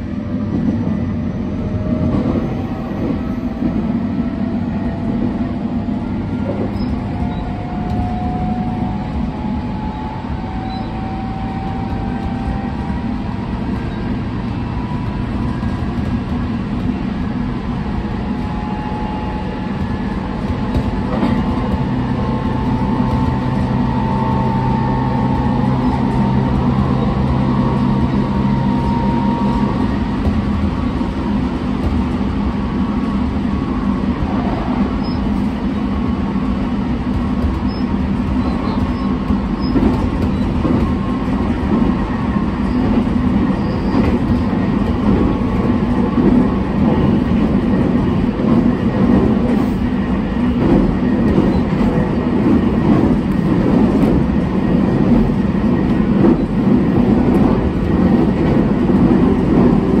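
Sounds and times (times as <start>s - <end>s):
train wheels rumbling on rail: 0.0s - 60.0s.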